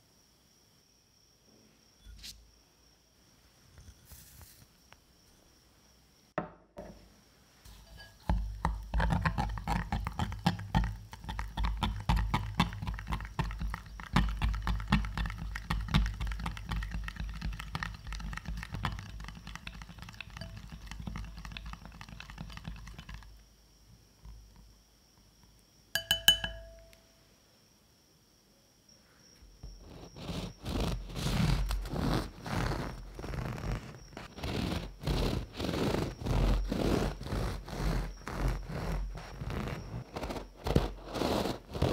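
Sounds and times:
glass bowl clink: 0:07.7 - 0:08.6, 0:26.0 - 0:27.1
spatula scraping a glass bowl: 0:07.7 - 0:23.3, 0:29.8 - 0:41.9.

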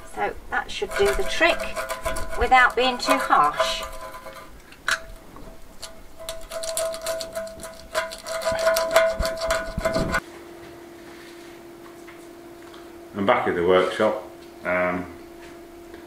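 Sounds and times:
plastic scraper scraping sink: 0:00.0 - 0:10.2
faint steady hum: 0:00.0 - 0:16.0.

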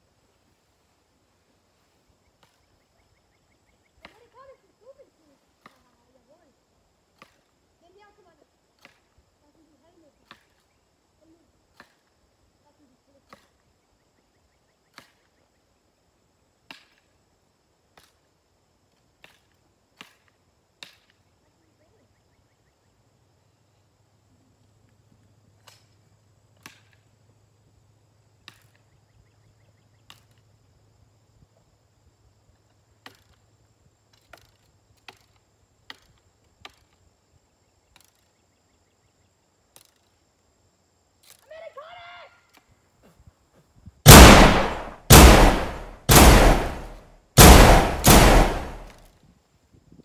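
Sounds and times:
steady low hum: 0:44.1 - 0:48.9
echoing gunshots: 0:44.1 - 0:49.0
sharp clicks: 0:44.1 - 0:49.0.

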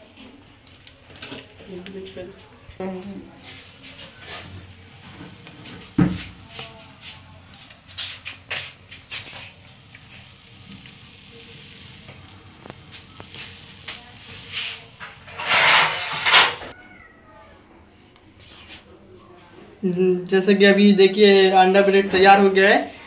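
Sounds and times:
bread sizzling on griddle: 0:00.0 - 0:16.7.

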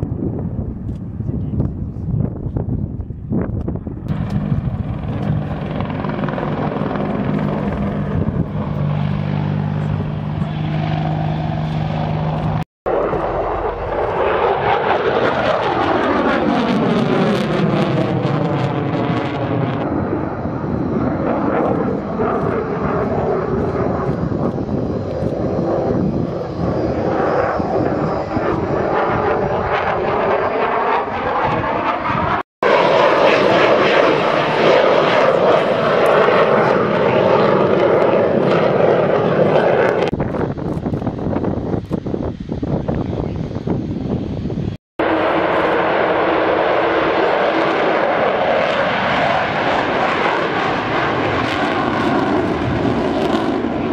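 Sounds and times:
jet engine roaring by: 0:03.7 - 0:53.9
helicopter rotor thudding: 0:04.1 - 0:16.2.

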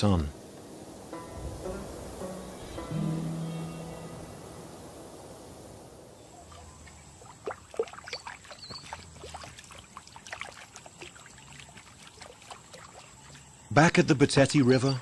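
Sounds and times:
bird splashing in shallow water: 0:06.2 - 0:13.7.

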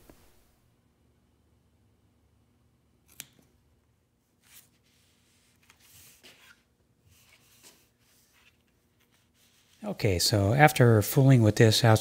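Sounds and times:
scissor snips: 0:03.1 - 0:03.4.

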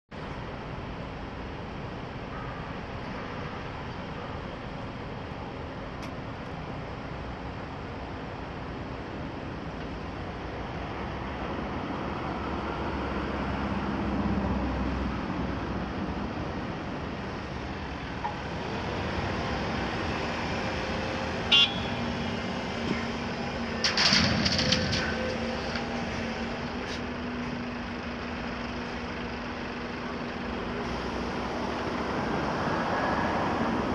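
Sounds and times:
loud clattering: 0:23.8 - 0:25.8.

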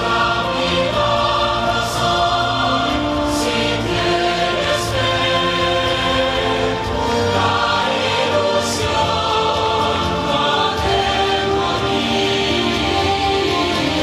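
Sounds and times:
choir singing with instruments: 0:00.0 - 0:14.0.

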